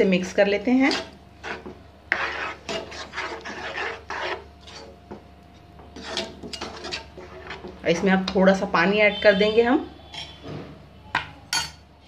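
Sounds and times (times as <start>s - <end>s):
spatula scraping frying pan: 0.6s - 8.4s.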